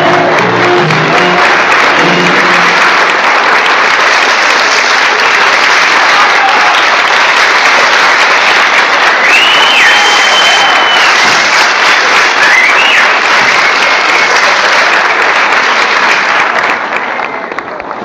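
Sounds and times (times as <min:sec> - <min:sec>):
dance music: 0:00.0 - 0:14.9
audience applauding: 0:00.0 - 0:18.0
long high whistle: 0:09.2 - 0:11.4, 0:12.3 - 0:13.2.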